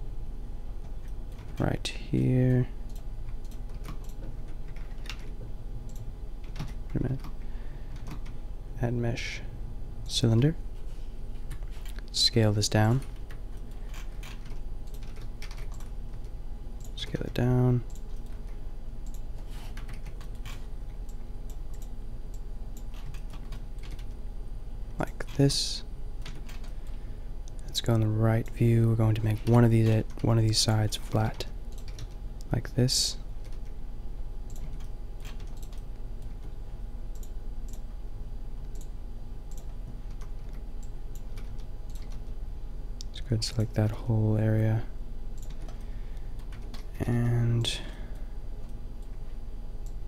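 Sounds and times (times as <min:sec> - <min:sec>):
low electrical hum: 0:00.0 - 0:50.0
computer keyboard clicks: 0:02.9 - 0:07.4, 0:08.0 - 0:08.4, 0:13.3 - 0:17.0, 0:19.8 - 0:24.2, 0:31.7 - 0:32.2, 0:34.5 - 0:36.5, 0:39.5 - 0:42.3, 0:45.4 - 0:45.8
keyboard keys clicking: 0:13.3 - 0:16.9, 0:31.7 - 0:32.2, 0:34.5 - 0:36.5, 0:39.5 - 0:42.3.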